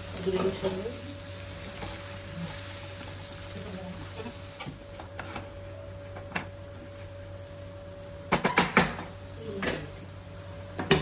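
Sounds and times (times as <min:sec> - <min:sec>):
utensils knocking on pan: 0:08.3 - 0:09.8.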